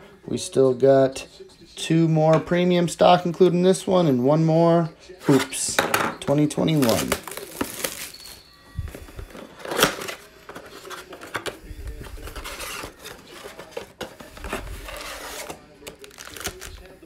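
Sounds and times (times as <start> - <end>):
crinkling of foil packs: 6.6 - 17.0.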